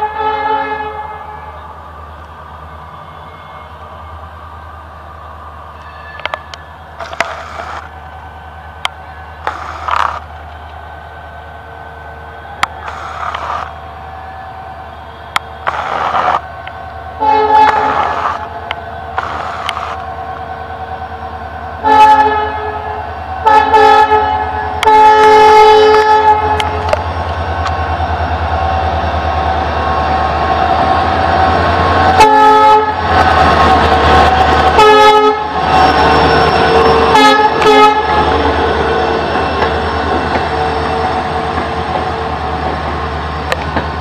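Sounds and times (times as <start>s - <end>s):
locomotive horn blasts: 0.0s - 1.6s, 17.2s - 18.8s, 21.8s - 27.0s, 32.1s - 33.0s, 34.6s - 39.2s
locomotive engine drone: 0.0s - 44.0s.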